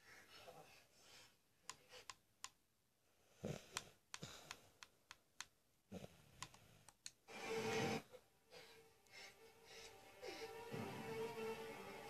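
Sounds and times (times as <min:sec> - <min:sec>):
faint clicks and taps: 0:01.6 - 0:02.6, 0:03.7 - 0:05.6.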